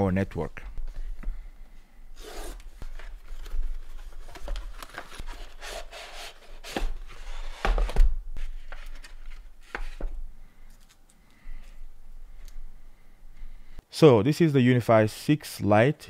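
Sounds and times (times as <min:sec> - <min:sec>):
cardboard packaging sliding and scraping: 0:02.2 - 0:09.1.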